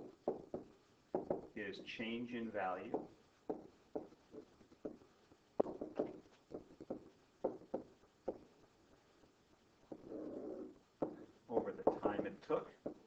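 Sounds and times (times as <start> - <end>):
stylus tapping on writing surface: 0.0 - 1.6, 2.9 - 5.0, 5.6 - 8.5, 11.0 - 13.0.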